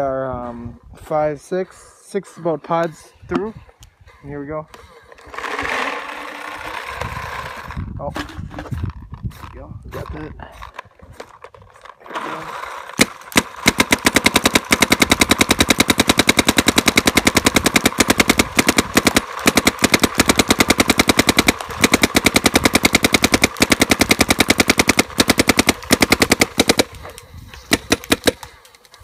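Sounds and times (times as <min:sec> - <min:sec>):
paintball marker rapid firing: 0:12.8 - 0:29.0.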